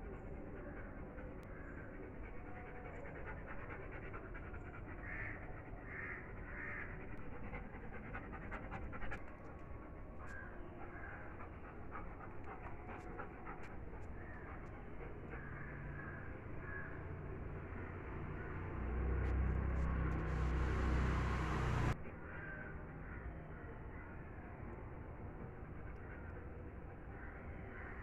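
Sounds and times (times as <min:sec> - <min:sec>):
dog panting: 0:00.0 - 0:22.0.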